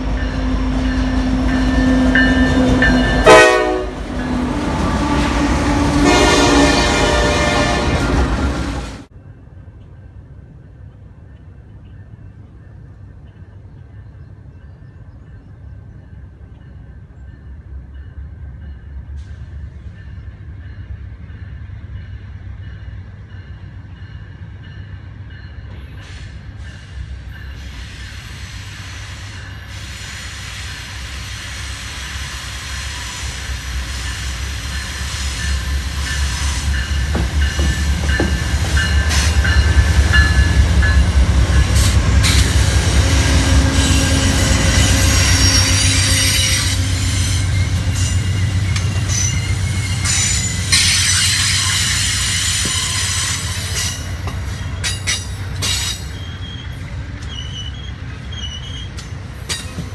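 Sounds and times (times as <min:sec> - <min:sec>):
diesel locomotive rumble: 0:00.0 - 0:59.9
train wheel noise: 0:00.0 - 0:59.9
high-pitched wheel squealing: 0:42.3 - 0:54.0.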